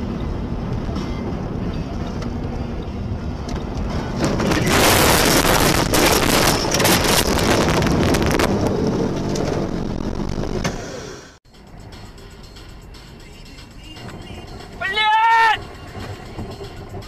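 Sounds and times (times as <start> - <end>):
car road noise: 0.0 - 17.0
snow pelting windshield: 4.1 - 11.2.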